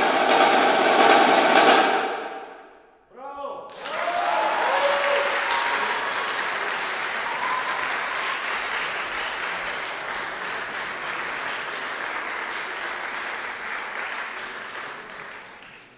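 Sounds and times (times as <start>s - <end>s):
audience applauding: 3.7s - 15.9s.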